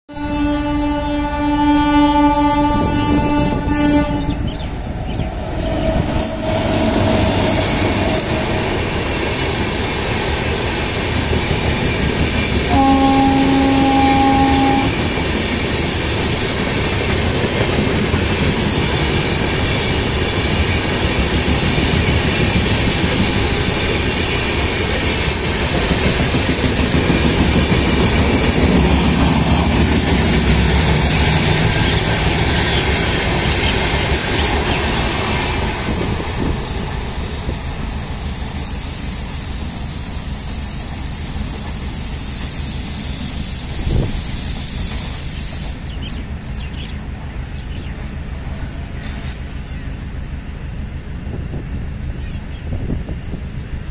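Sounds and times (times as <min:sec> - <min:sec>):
train horn: 0:00.1 - 0:04.6, 0:12.6 - 0:15.2
train wheels on track: 0:00.1 - 0:53.9.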